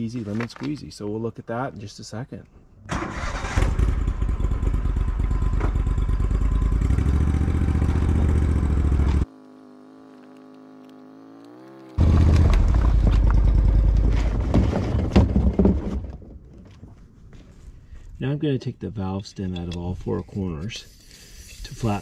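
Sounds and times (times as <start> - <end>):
atv engine running loudly: 4.2 - 10.1.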